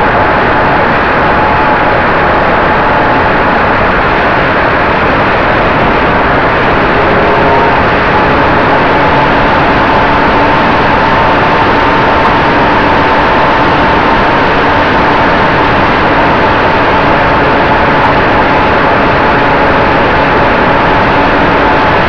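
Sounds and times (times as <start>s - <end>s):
air rushing over microphone: 0.0s - 22.0s
model plane motor droning: 4.8s - 22.0s.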